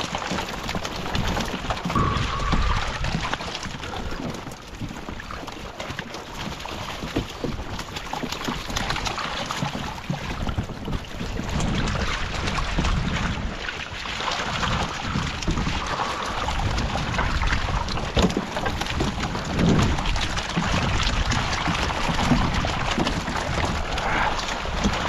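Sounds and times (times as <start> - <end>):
fish splashing in water: 0.0 - 25.0.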